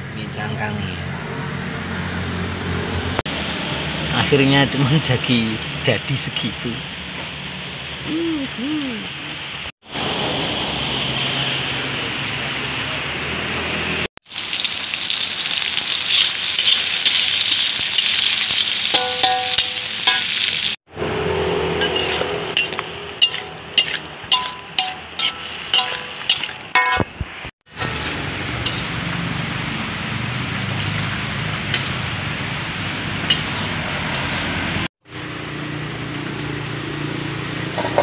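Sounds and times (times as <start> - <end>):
food sizzling in a wok: 14.3 - 20.8, 21.8 - 26.7, 27.7 - 35.3
metal spatula scraping a wok: 21.6 - 26.6, 27.7 - 29.0, 33.2 - 34.9.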